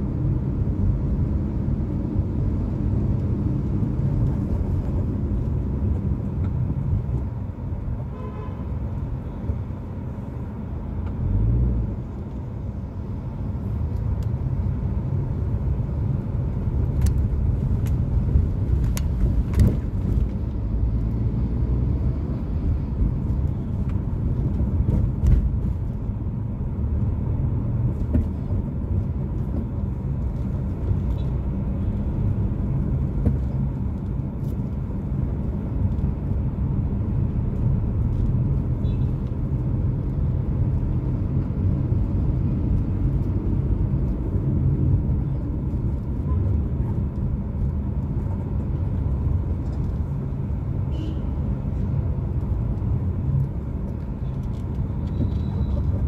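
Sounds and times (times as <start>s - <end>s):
car engine and road rumble: 0.0s - 56.0s
vehicle horn: 8.1s - 8.7s, 50.9s - 51.3s.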